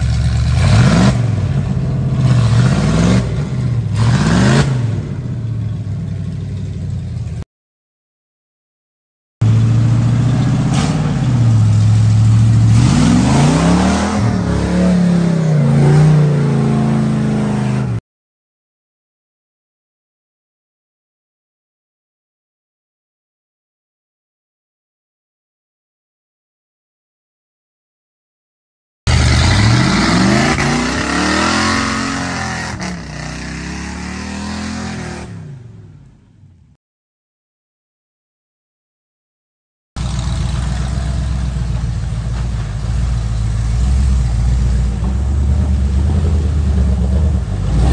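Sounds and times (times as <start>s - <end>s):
truck engine revving: 0.0s - 6.7s, 9.4s - 18.0s, 29.1s - 36.1s, 40.0s - 47.9s
truck driving through mud: 0.0s - 7.4s, 9.4s - 18.0s, 29.1s - 35.9s, 40.0s - 47.9s.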